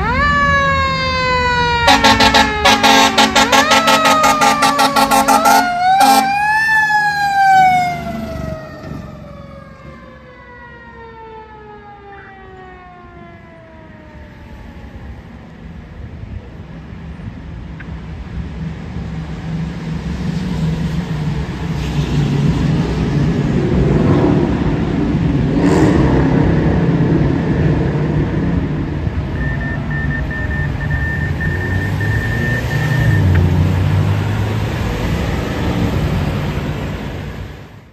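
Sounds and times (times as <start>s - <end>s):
vehicle passing close: 0.0s - 10.8s, 19.4s - 37.8s
fire engine siren: 0.0s - 16.4s, 26.3s - 37.9s
street traffic rumble: 0.0s - 37.9s.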